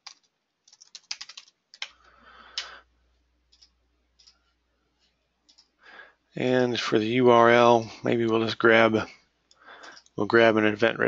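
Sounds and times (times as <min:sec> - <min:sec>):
keyboard typing: 0:00.0 - 0:02.8, 0:03.5 - 0:04.6, 0:05.4 - 0:05.8.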